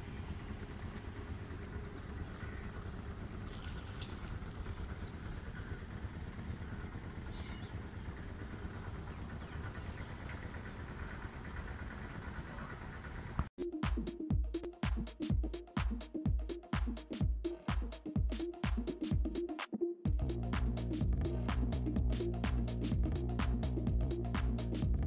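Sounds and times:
distant tractor engine rumble: 0.0 - 13.5.

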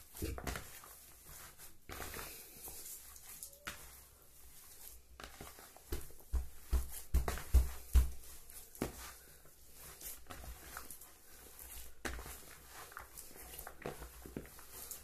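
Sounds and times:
hands kneading bait mixture: 0.0 - 15.0
soft rustling: 0.0 - 15.0.

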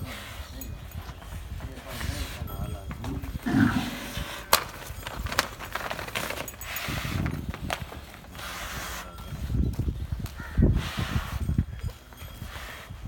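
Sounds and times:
hooves scraping dry dirt: 0.0 - 13.0
bull grunting: 3.2 - 4.6.

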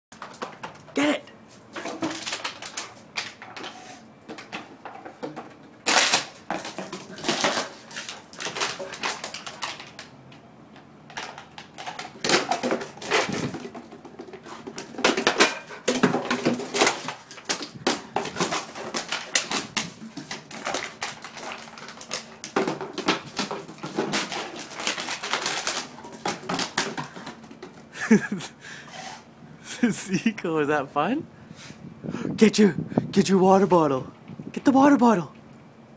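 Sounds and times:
plastic bottle clattering on stone tiles: 0.1 - 1.0, 1.7 - 10.2, 11.1 - 28.4.

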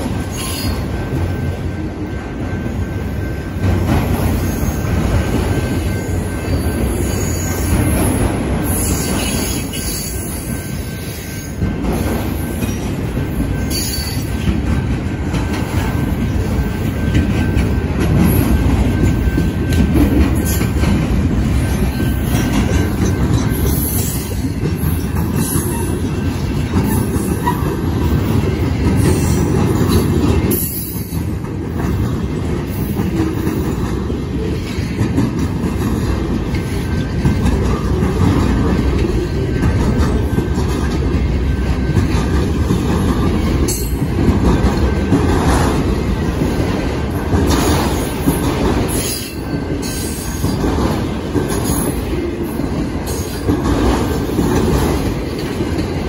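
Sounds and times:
train wheels rumbling on rail: 0.0 - 56.0
high-pitched wheel squeal: 0.3 - 0.8.

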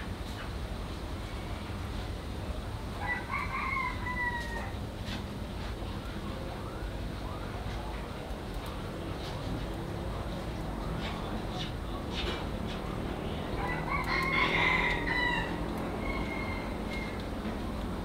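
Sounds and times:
rooster crowing: 3.0 - 4.8, 13.6 - 17.3.

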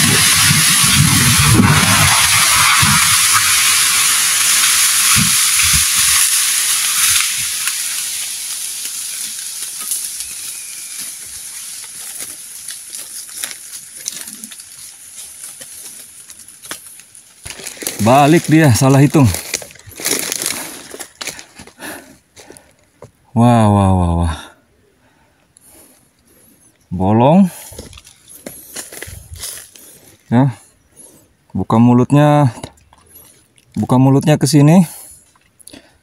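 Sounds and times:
debris cracking and snapping: 0.0 - 21.8
tree crashing through branches: 0.0 - 21.8.

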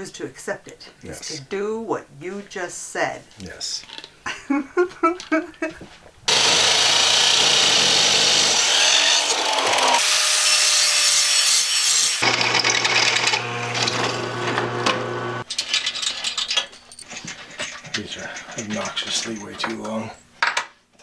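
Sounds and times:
drill boring into wood: 6.3 - 10.8, 12.0 - 15.4
chop saw cutting steel: 6.3 - 15.4
angle grinder on steel: 6.3 - 15.5
motor hum: 12.2 - 15.4.

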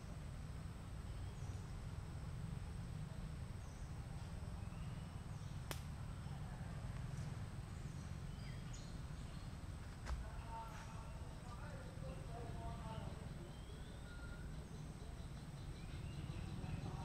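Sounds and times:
low outdoor rumble: 0.0 - 17.0
faint high chirps: 10.4 - 17.0.

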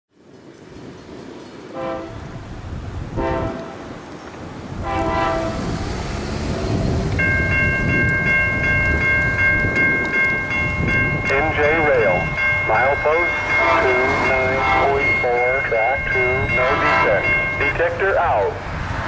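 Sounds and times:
low train rumble: 0.1 - 19.0
train air horn blasts: 1.7 - 2.3, 3.2 - 3.9, 4.8 - 5.8, 13.2 - 15.0, 16.3 - 17.5
bell ringing rapidly: 7.2 - 18.2.

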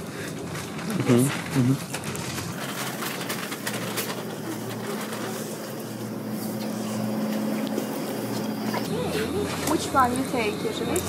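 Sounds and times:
refrigerated cases humming: 0.0 - 11.0
higher hum: 4.3 - 11.0.

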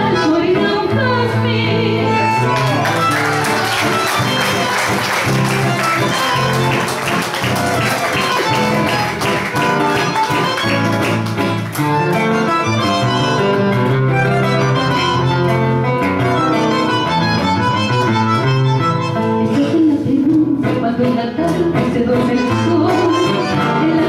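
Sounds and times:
guitar strumming: 0.0 - 24.0
melody of held notes: 2.1 - 19.5.

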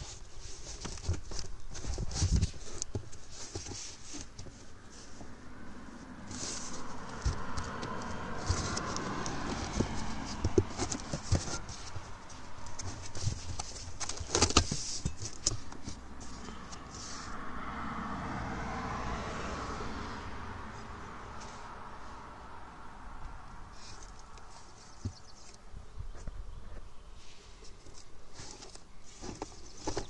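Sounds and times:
foam and cardboard rubbing: 0.0 - 5.3, 6.2 - 17.4, 27.8 - 30.0.

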